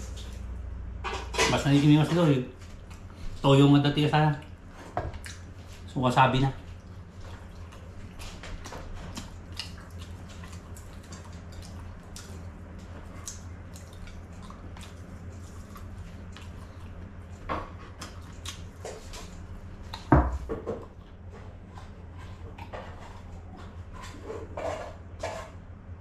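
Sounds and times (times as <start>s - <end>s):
chewing and lip smacks: 5.2s - 5.8s, 6.6s - 20.1s.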